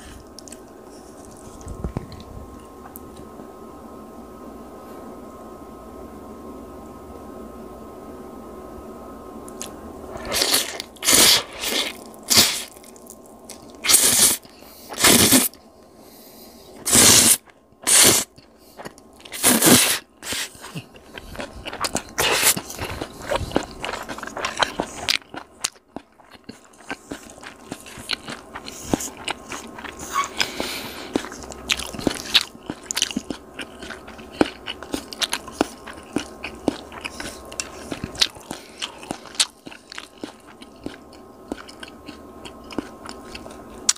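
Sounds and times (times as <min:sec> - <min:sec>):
chewing: 0:00.0 - 0:03.3, 0:09.5 - 0:15.6, 0:16.8 - 0:43.9
crunching bites: 0:16.8 - 0:43.9.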